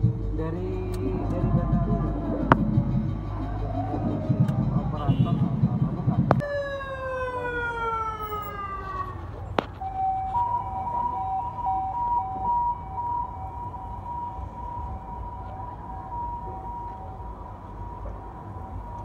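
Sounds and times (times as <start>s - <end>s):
passing vehicles rumbling: 0.0s - 19.0s
siren falling in pitch: 6.4s - 9.2s, 9.8s - 19.0s
two-tone hi-lo siren: 6.4s - 9.2s, 9.8s - 19.0s.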